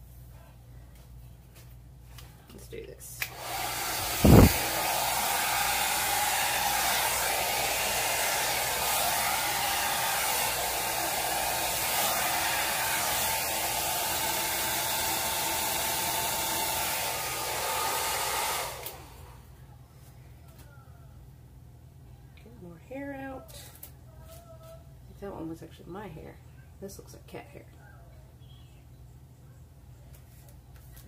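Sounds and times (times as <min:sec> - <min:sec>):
hair dryer blowing: 0:03.2 - 0:19.5.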